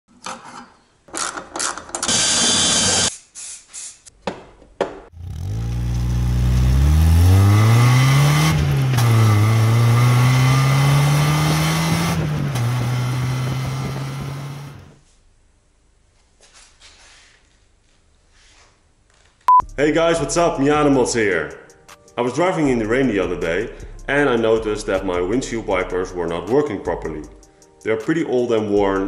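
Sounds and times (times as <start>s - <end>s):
car engine accelerating: 5.1s - 15.0s.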